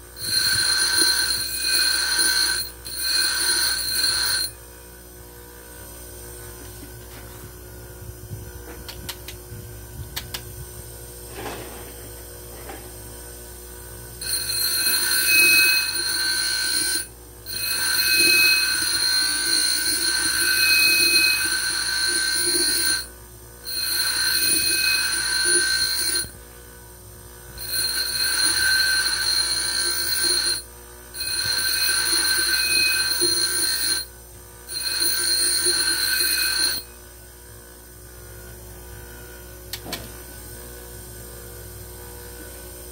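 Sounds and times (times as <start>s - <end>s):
grinder wheel grinding steel: 0.0s - 4.6s, 14.2s - 26.4s, 27.5s - 37.0s
grinder motor running: 0.0s - 9.4s, 12.1s - 42.9s.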